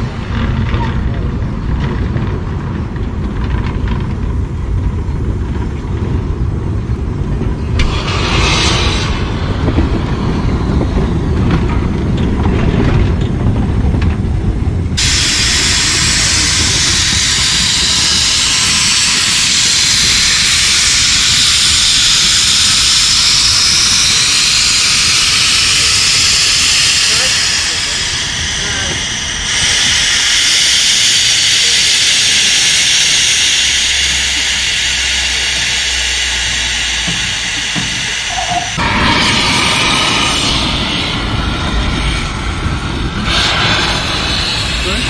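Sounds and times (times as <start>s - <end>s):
low rumble: 0.0s - 45.0s
steam locomotive hissing steam: 6.4s - 12.2s, 14.9s - 45.0s
brief steam hiss: 7.8s - 9.8s, 15.0s - 42.4s, 43.1s - 45.0s.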